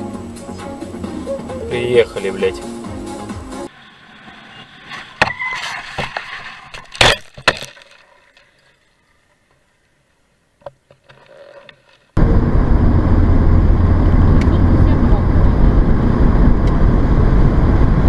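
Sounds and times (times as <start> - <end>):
sharp cracks and knocks: 5.9 - 8.7
car road and engine noise: 12.1 - 18.0.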